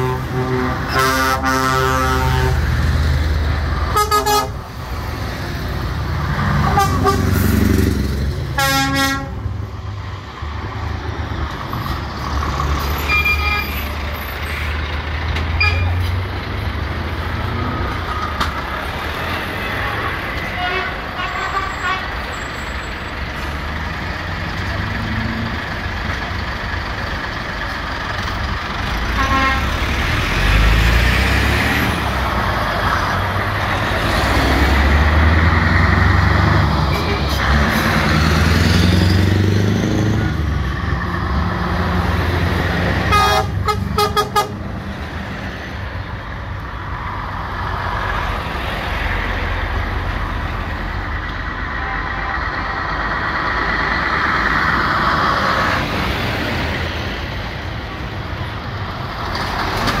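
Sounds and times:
truck horns tooting: 0.0 - 2.8, 3.9 - 4.7, 6.5 - 7.7, 8.5 - 9.5, 12.9 - 14.2, 15.5 - 16.1, 19.6 - 23.0, 29.0 - 30.1, 43.0 - 44.7, 51.7 - 53.1
trucks driving past: 0.0 - 60.0.

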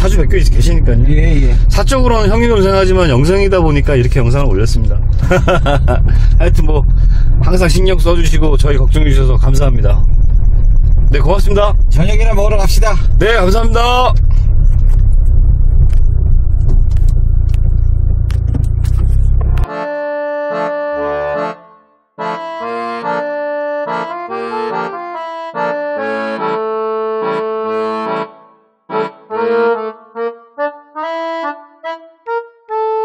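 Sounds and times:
accordion-like music chords: 0.0 - 8.0, 13.4 - 33.0
car engine and road rumble: 0.0 - 19.7.

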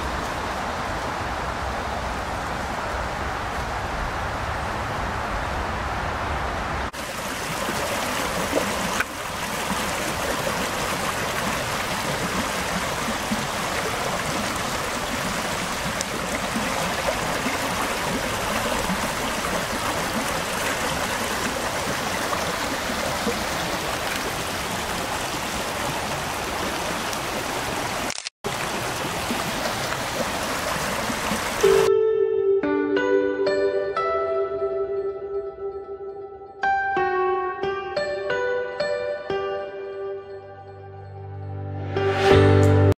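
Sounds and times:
creek flowing over stones: 6.9 - 31.9.

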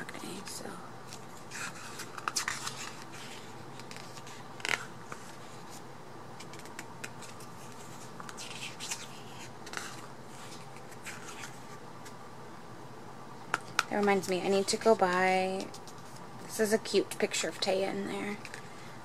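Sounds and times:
photobook pages turning: 1.1 - 5.8, 6.4 - 12.2.

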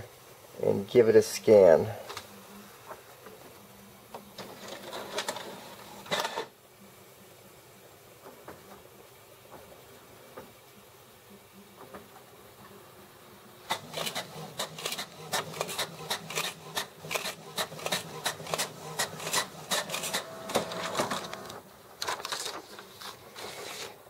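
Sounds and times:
printer motor hum: 13.7 - 22.2
printer mechanism clicking: 13.7 - 22.5.

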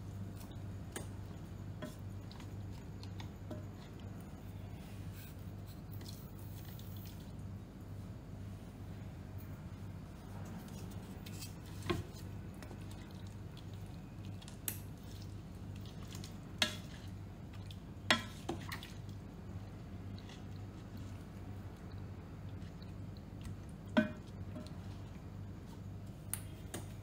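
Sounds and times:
wet stirring sounds: 0.0 - 7.4, 10.0 - 27.0
low steady hum: 0.0 - 27.0
spatula knocking against pot: 23.9 - 24.7.

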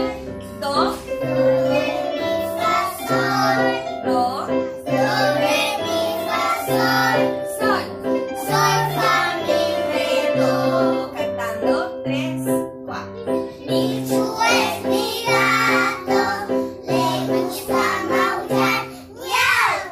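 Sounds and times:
children singing: 1.3 - 4.0, 4.9 - 11.2, 13.6 - 19.9.

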